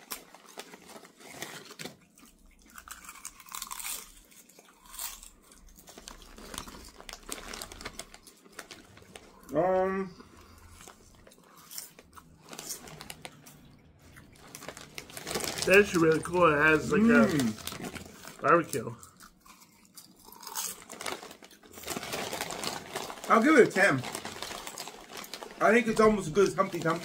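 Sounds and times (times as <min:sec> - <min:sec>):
chewing chips: 0:00.0 - 0:27.0
chip bag crinkling: 0:00.0 - 0:27.0.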